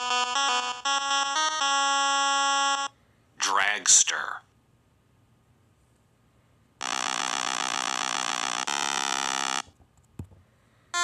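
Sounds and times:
harsh electronic buzzer: 6.8s - 9.7s.

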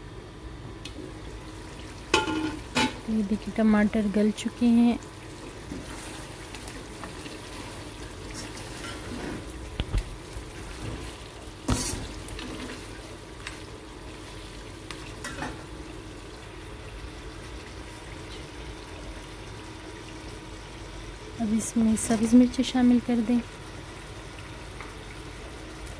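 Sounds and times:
meat sizzling in oil: 1.0s - 25.9s.

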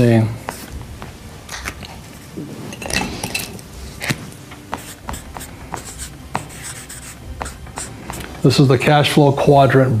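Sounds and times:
marker drawing on paper: 0.4s - 1.1s, 4.0s - 8.4s.

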